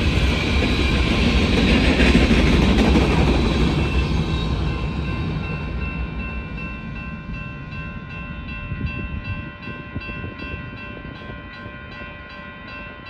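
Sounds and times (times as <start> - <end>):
freight train rumble: 0.0 - 13.0
crossing bell ringing: 3.2 - 13.0.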